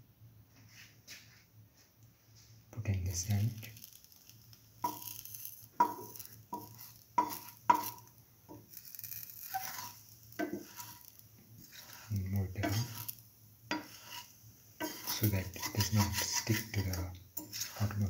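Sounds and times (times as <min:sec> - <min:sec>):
metal spatula scraping frying pan: 0:04.8 - 0:18.0.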